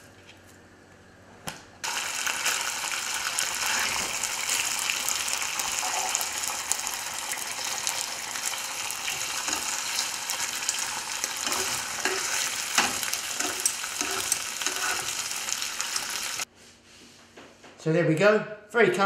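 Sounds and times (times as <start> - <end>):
squid sizzling in oil: 1.8 - 16.5.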